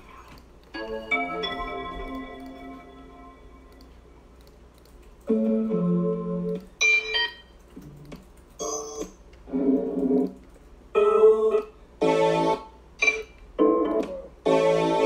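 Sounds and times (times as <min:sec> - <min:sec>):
keyboard chords: 0:00.7 - 0:04.2, 0:05.2 - 0:07.2, 0:11.0 - 0:15.0.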